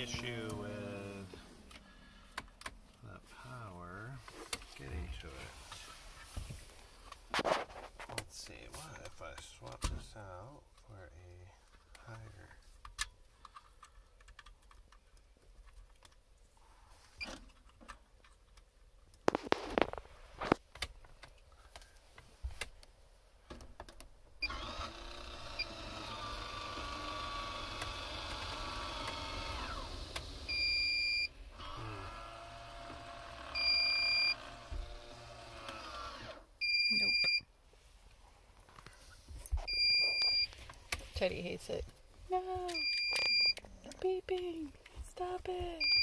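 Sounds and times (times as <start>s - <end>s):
roof vent fan motor hum: 0.0s - 1.9s.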